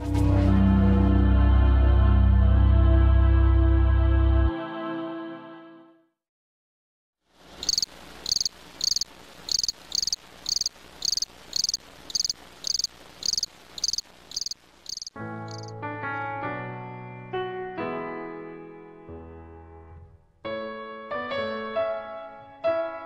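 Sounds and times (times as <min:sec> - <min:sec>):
cricket chirping: 0:07.6 - 0:15.7.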